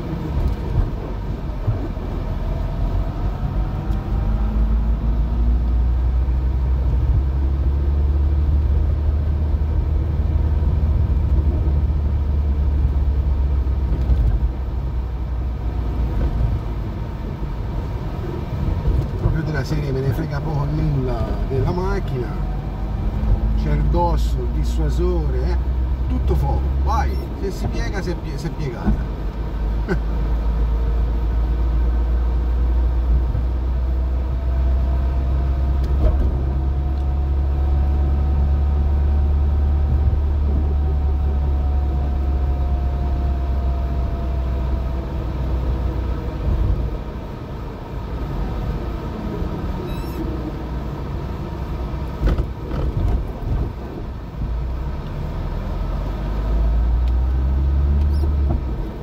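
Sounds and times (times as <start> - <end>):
car engine and road rumble: 0.0 - 59.0
faint whine: 49.6 - 50.6.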